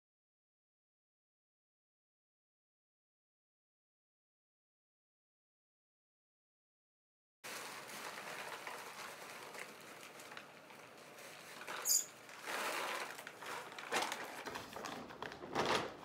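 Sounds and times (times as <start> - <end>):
pellets pouring into plastic container: 7.5 - 14.9
feed bag rustling: 7.5 - 16.0
short high squeak: 11.8 - 12.1.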